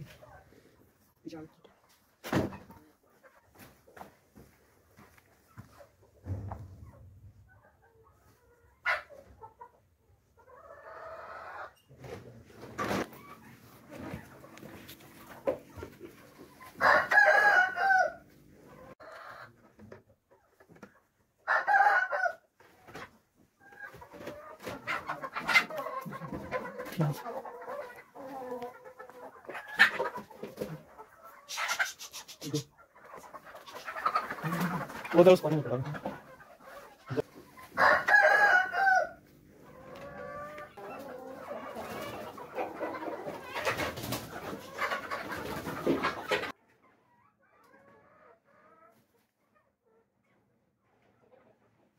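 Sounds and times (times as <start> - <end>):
chicken clucks: 0.0 - 51.9
rooster crowing: 16.8 - 18.2, 37.8 - 39.2.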